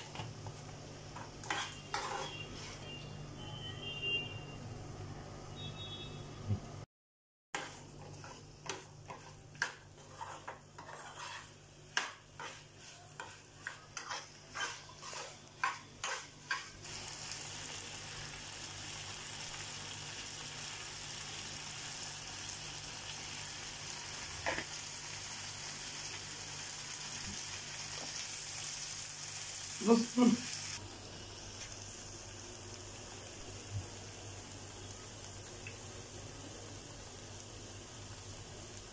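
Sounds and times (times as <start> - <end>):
vegetables sizzling in pan: 0.0 - 3.0, 7.6 - 38.9
metal spoon scraping frying pan: 1.1 - 3.0, 7.6 - 16.8.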